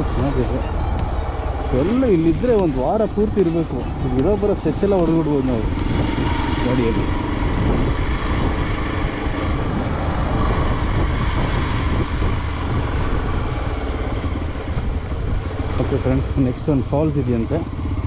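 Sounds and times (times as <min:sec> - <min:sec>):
motorcycle engine running: 0:00.0 - 0:18.0
wind rumble on microphone: 0:00.0 - 0:18.0.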